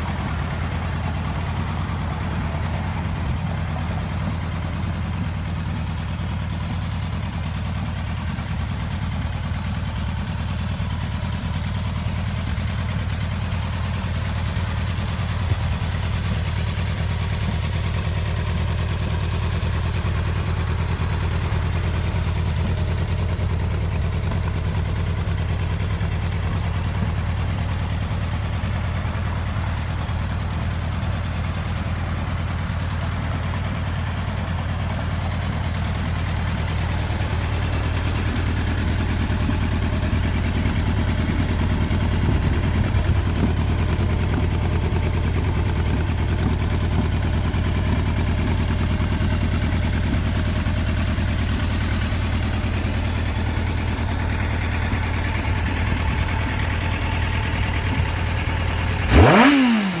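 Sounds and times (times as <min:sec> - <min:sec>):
motorcycle engine idling: 0:00.0 - 1:00.0
throttle blip revving engine: 0:57.2 - 1:00.0.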